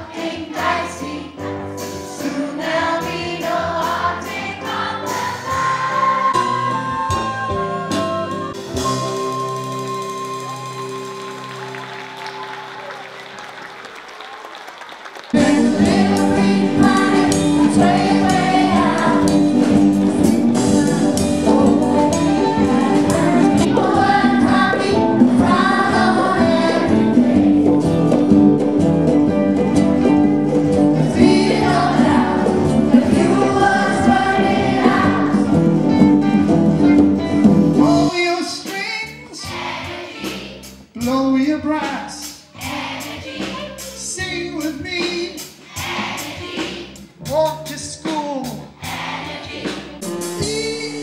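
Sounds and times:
children's choir singing: 0.0s - 9.7s, 15.3s - 19.9s, 21.6s - 28.1s, 30.6s - 35.7s, 39.3s - 40.7s, 42.6s - 44.0s, 45.4s - 47.0s, 48.8s - 51.0s
live band playing upbeat song: 0.0s - 13.6s, 15.3s - 51.0s.

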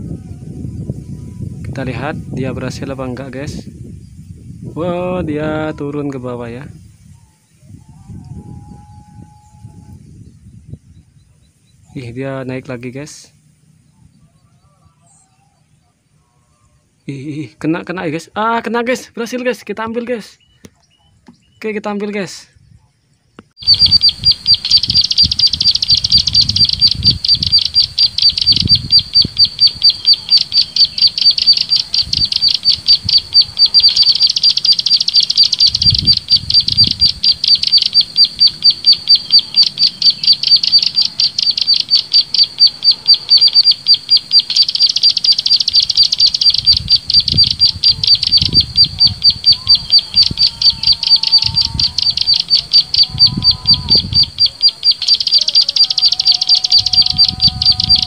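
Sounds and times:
high bird chirps: 22.6s - 58.0s.

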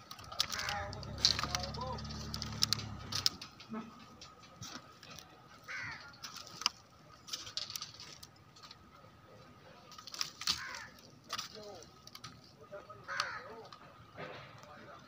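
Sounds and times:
crow cawing: 0.4s - 1.0s, 5.6s - 6.2s, 10.4s - 11.1s, 13.0s - 13.7s.

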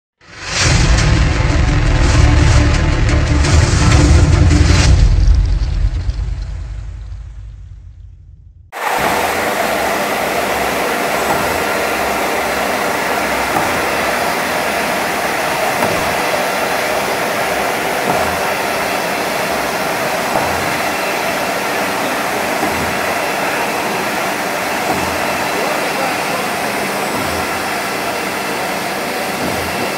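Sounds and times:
veneer lathe running: 8.8s - 29.9s.

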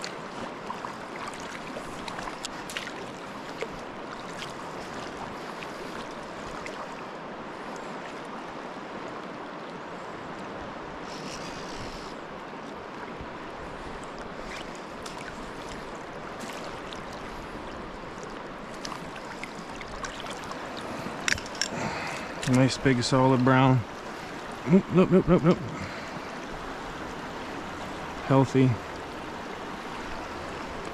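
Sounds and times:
river current rushing: 0.0s - 30.9s.

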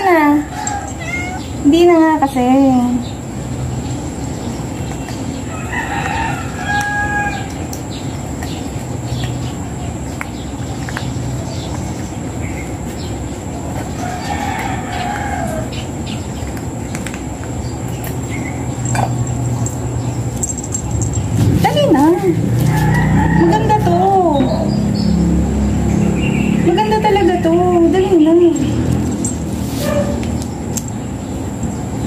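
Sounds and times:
steady background noise: 0.0s - 32.0s
rooster crowing: 0.4s - 1.4s, 5.4s - 7.6s, 13.9s - 15.8s, 22.4s - 24.0s.

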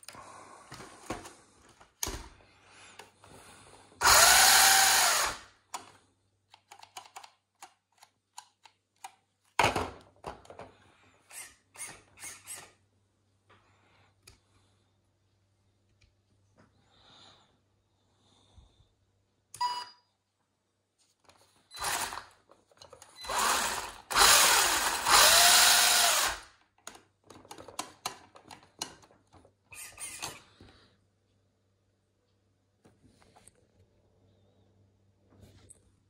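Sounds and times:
electric motor whirring: 23.2s - 26.4s.

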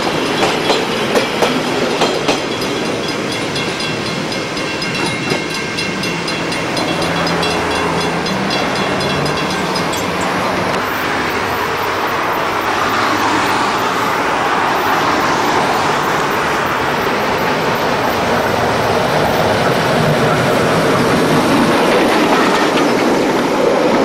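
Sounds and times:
steam locomotive approaching: 0.0s - 24.0s
level crossing bells ringing: 2.4s - 13.4s.

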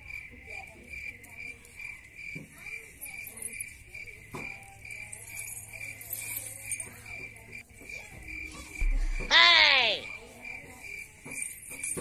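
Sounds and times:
cricket chirping: 0.0s - 12.0s
soft thump: 8.6s - 9.3s.

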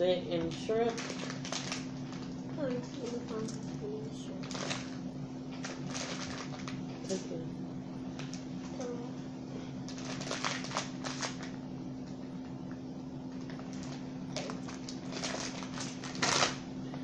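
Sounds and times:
steady low hum: 0.0s - 17.0s
plastic packet crinkling: 0.5s - 7.2s, 8.1s - 8.8s, 9.9s - 11.6s, 13.3s - 16.6s
crab shells crackling: 0.9s - 2.4s.

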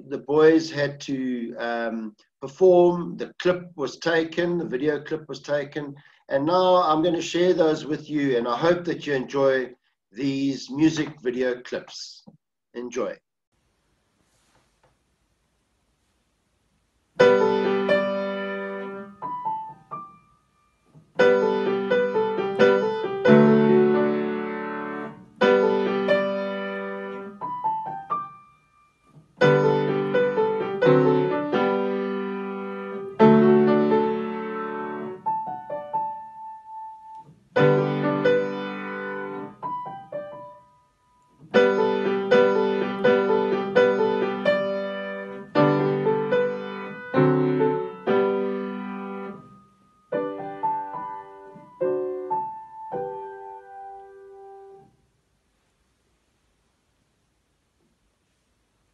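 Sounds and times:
solo grand piano: 17.2s - 55.0s.

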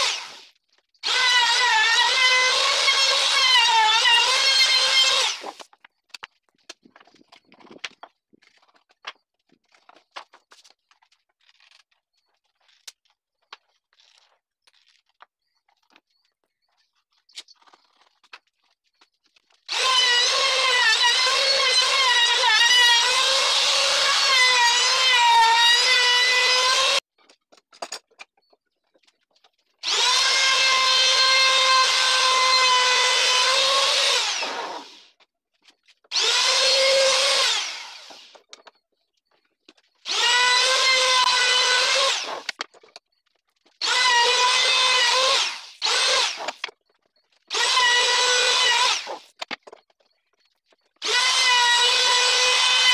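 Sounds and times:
trim router motor whining: 0.0s - 5.6s, 19.7s - 27.0s, 29.8s - 35.0s, 36.1s - 38.4s, 40.1s - 42.5s, 43.8s - 46.6s, 47.5s - 49.2s, 51.0s - 52.9s.

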